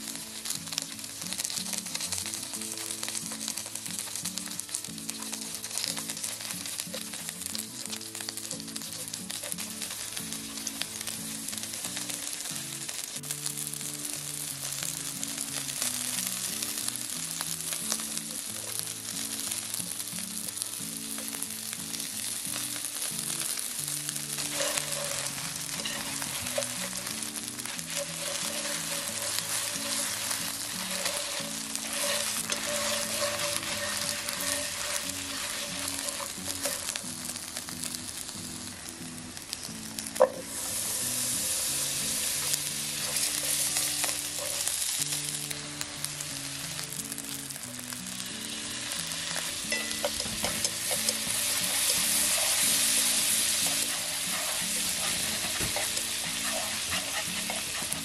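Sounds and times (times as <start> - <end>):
chicken sizzling in a pan: 0.0 - 58.0
butter foaming in hot pan: 23.1 - 37.3, 49.0 - 58.0.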